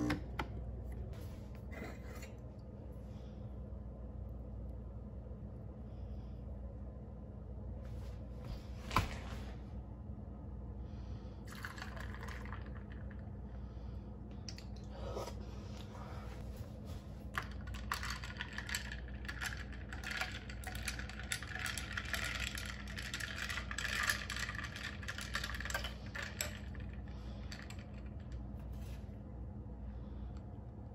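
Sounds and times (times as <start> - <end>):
ice cubes clinking in a glass: 17.6 - 26.8.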